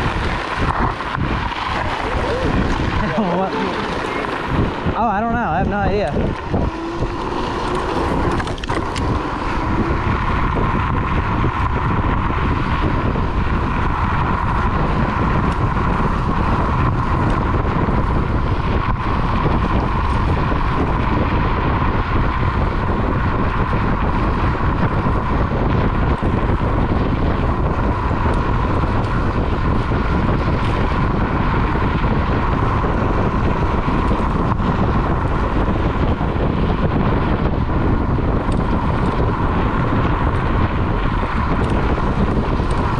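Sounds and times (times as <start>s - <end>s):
electric scooter whine: 0.0s - 42.9s
tyre rumble: 0.0s - 42.9s
wind rushing over microphone: 0.0s - 42.9s.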